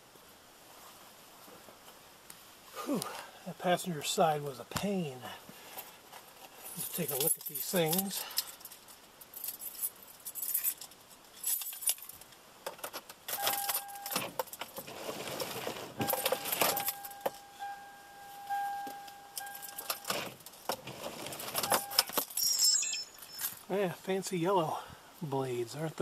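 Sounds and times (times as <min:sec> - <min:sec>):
thin steady squeal: 0:16.0 - 0:20.2, 0:21.7 - 0:23.6.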